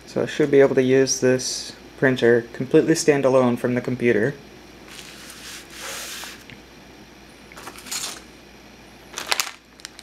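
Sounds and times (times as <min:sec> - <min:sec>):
plastic packaging crinkling: 0:09.1 - 0:10.0.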